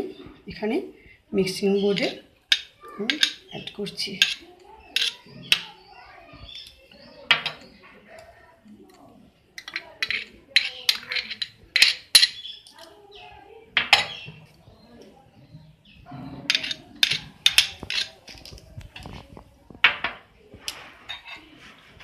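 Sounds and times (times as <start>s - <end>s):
utensil clinking on glass bowl: 5.0s - 5.7s, 9.6s - 12.8s.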